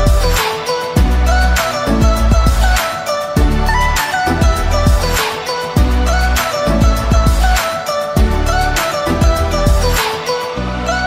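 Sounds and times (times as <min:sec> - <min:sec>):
deep bass notes: 0:00.0 - 0:00.4, 0:01.0 - 0:02.8, 0:03.4 - 0:05.2, 0:05.8 - 0:07.6, 0:08.2 - 0:10.0
background music with steady beat: 0:00.0 - 0:11.0
held melody: 0:00.0 - 0:11.0.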